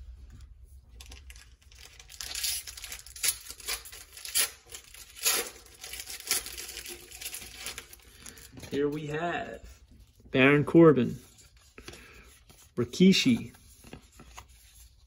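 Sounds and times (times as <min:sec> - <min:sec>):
paper wrapper tearing: 0:01.0 - 0:09.1.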